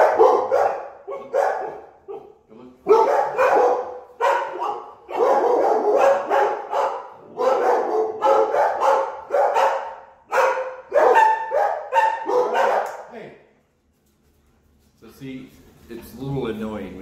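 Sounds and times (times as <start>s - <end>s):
dogs barking rapidly: 0.0s - 13.1s.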